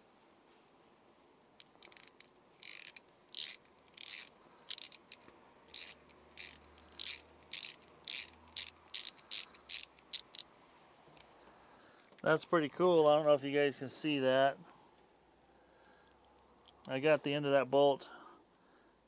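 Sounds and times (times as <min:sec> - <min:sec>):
ratcheting tap handle clicking: 0:01.6 - 0:10.4.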